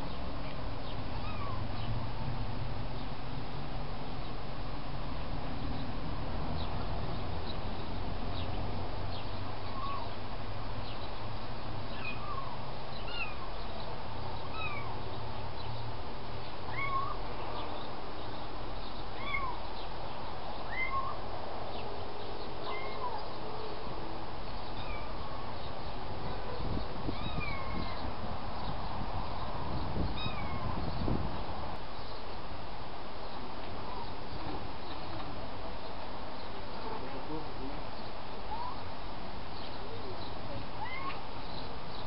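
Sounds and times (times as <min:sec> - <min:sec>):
kitten mewing: 0:40.8 - 0:41.2.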